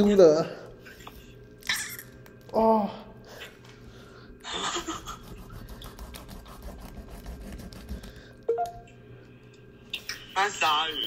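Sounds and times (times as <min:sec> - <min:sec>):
knife sawing through fish bone: 0:05.0 - 0:08.2.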